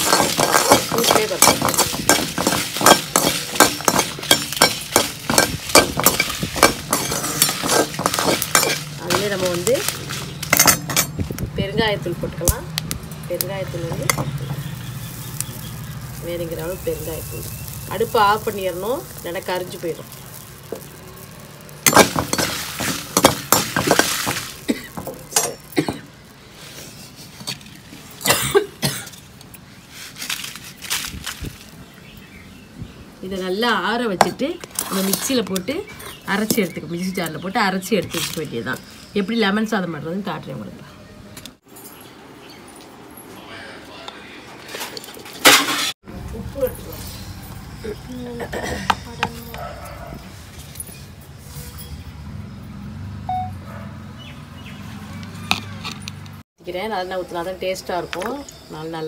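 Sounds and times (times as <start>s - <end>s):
metal spatula scraping metal pan: 0.0s - 11.1s
metal kitchenware clinking: 0.0s - 11.2s, 21.8s - 26.1s.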